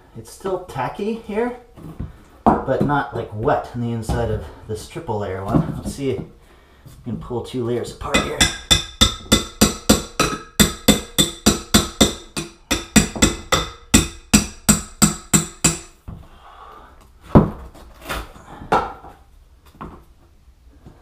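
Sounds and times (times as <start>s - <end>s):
knocks: 8.1s - 15.9s
hammer striking metal blade: 8.1s - 16.0s.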